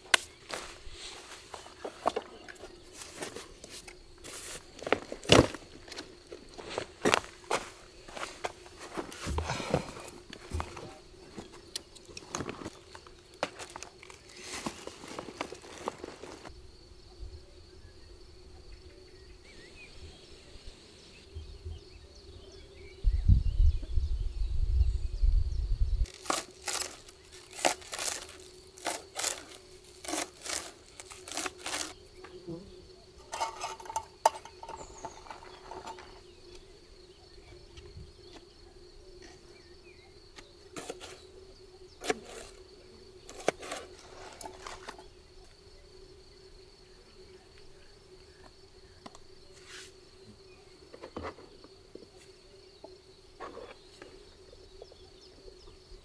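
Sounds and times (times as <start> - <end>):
rustling and crinkling handling noise: 0.0 - 16.5, 26.1 - 32.0, 33.2 - 36.3
insect drone: 0.0 - 56.0
low rumble on microphone: 23.0 - 26.1.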